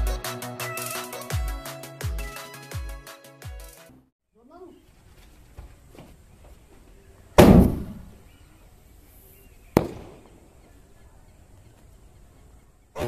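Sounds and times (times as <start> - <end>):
firework launch bang: 7.4 - 8.2, 9.8 - 10.3
firework shell bursting crack: 9.8 - 10.3.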